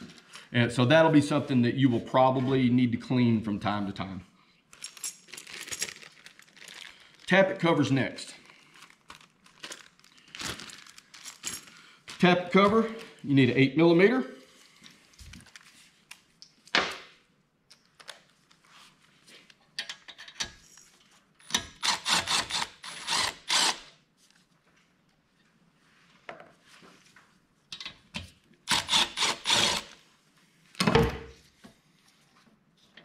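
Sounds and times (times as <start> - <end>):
cordless ratchet whirring: 21.8 - 23.9, 28.7 - 30.0.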